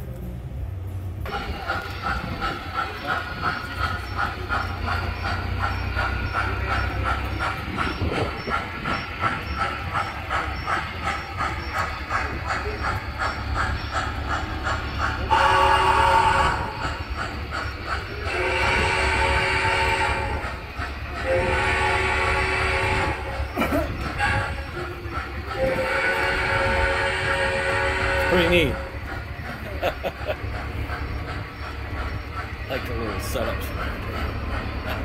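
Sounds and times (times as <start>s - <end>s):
model steam train chuffing: 0.0s - 35.0s
motor and wheels rumble: 0.0s - 35.0s
train whistle: 15.3s - 17.0s, 18.2s - 20.5s, 21.2s - 23.5s, 24.2s - 24.7s, 25.6s - 28.9s.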